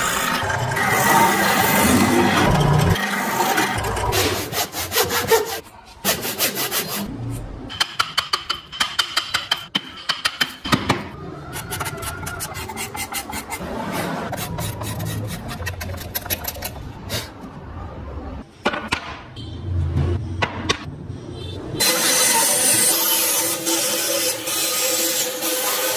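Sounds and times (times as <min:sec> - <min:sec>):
chisel cutting and scraping wood: 0:11.5 - 0:16.8.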